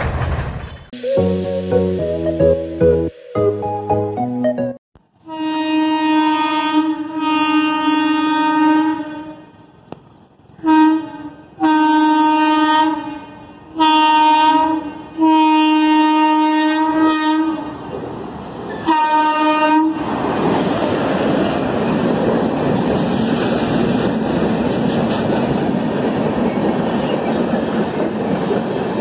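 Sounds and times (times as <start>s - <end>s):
locomotive horn blasts: 5.2s - 9.6s, 10.6s - 17.8s, 18.8s - 20.0s.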